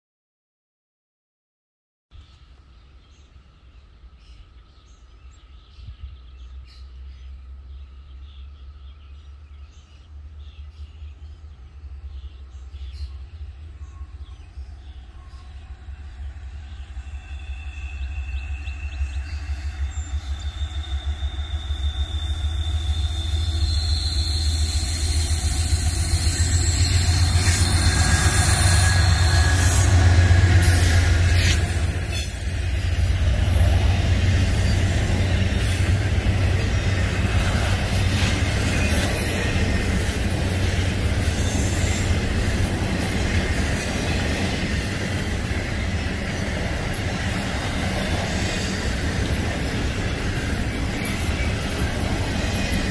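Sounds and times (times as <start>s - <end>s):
train cars rumbling: 2.6s - 52.9s
diesel locomotive engine throb: 5.9s - 52.9s
high wheel squeal: 17.0s - 33.7s, 41.2s - 42.3s.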